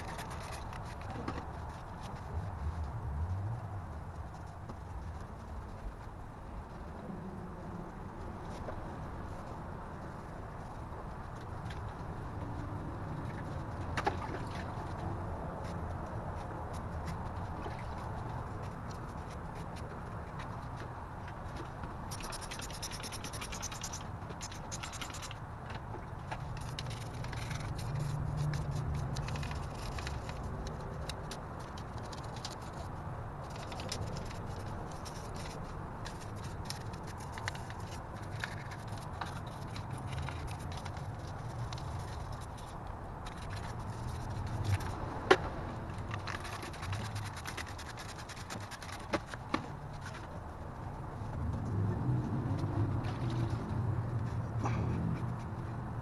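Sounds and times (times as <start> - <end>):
brush scrubbing metal: 22.1 - 25.4, 46.1 - 49.4.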